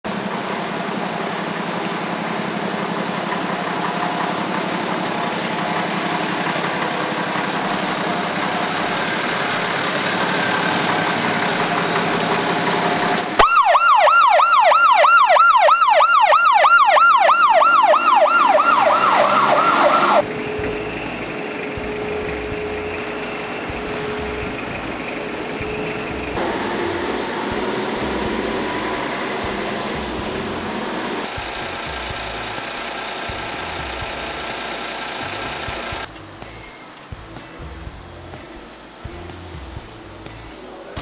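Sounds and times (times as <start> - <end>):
emergency vehicle siren yelp: 2.9 - 36.1.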